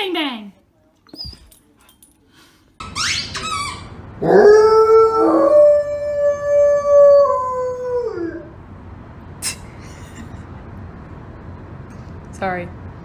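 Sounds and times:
dog squeaks: 0:01.1 - 0:01.5, 0:02.8 - 0:04.0
dog howling: 0:04.2 - 0:08.6.

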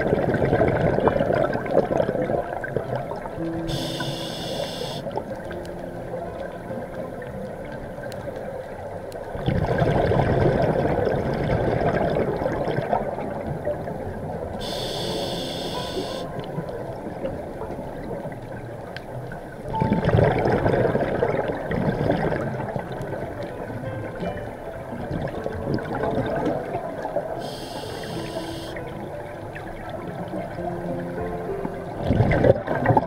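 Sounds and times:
exhaled air bubbling: 0:00.0 - 0:05.8, 0:06.4 - 0:23.7, 0:24.7 - 0:33.0
regulator inhale hiss: 0:03.7 - 0:05.1, 0:14.6 - 0:16.3, 0:27.4 - 0:28.8.

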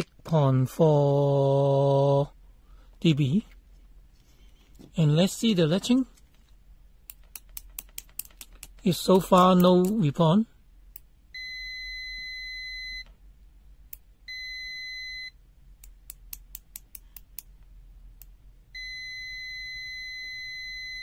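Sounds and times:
high multimeter beep: 0:11.4 - 0:13.1, 0:14.3 - 0:15.4, 0:18.8 - 0:21.0.

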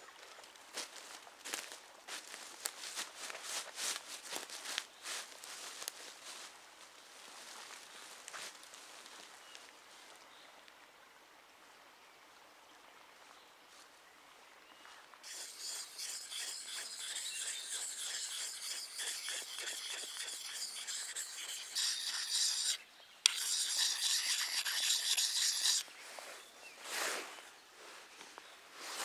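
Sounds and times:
whetstone rasping on knife edge: 0:15.2 - 0:25.8.

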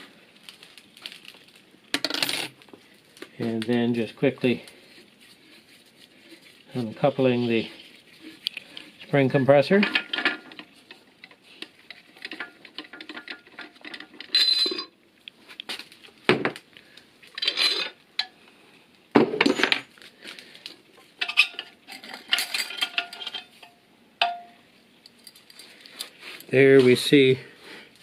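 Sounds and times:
metal tools clinking on metal: 0:09.7 - 0:10.7, 0:12.2 - 0:14.9, 0:17.4 - 0:18.0, 0:21.2 - 0:24.5.

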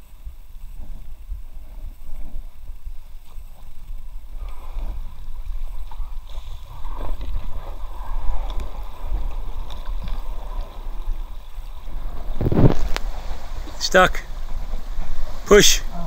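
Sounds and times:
low rumble on microphone: 0:00.0 - 0:16.0
brook water rushing and splashing: 0:03.6 - 0:16.0.

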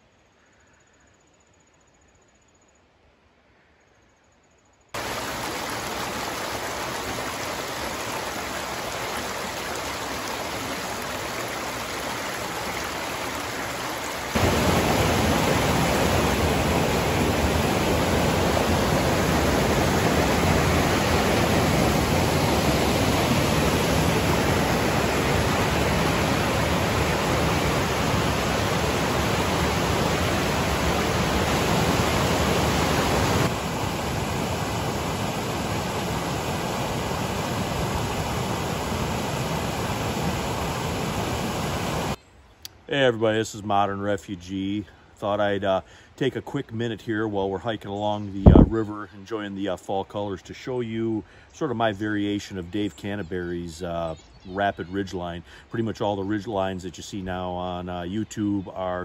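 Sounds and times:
waterfall and rapids rushing: 0:05.0 - 0:42.8, 0:48.2 - 0:48.8.

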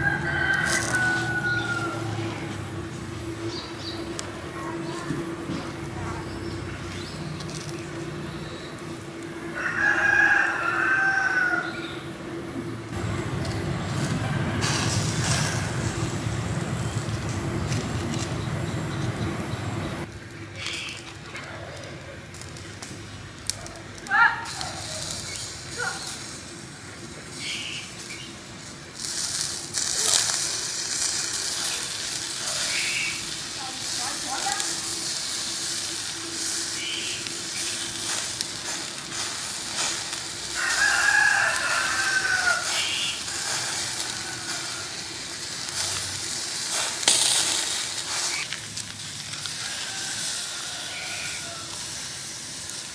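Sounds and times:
rooster crowing: 0:00.0 - 0:02.9, 0:09.0 - 0:12.4, 0:13.9 - 0:16.1, 0:39.0 - 0:45.4, 0:49.4 - 0:52.2
sauce sizzling on grilling meat: 0:00.0 - 0:12.0, 0:12.8 - 0:52.9
steady low noise: 0:00.0 - 0:20.6.

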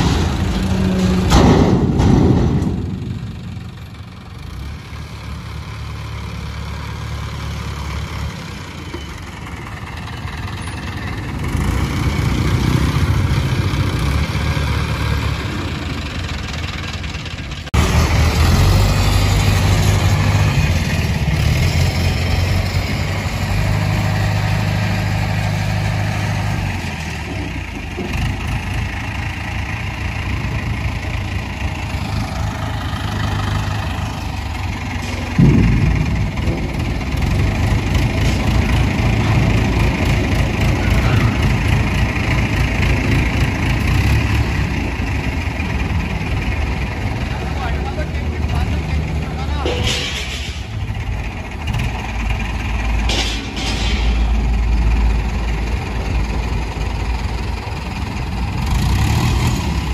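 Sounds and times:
diesel crane engine running: 0:00.0 - 0:59.9
sharp knock: 0:35.2 - 0:37.2.

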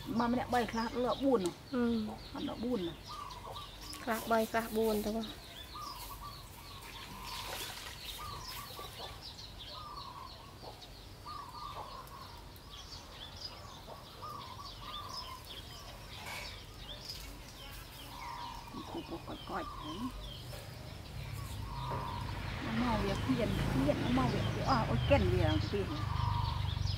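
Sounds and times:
birds chirping: 0:00.0 - 0:26.9.

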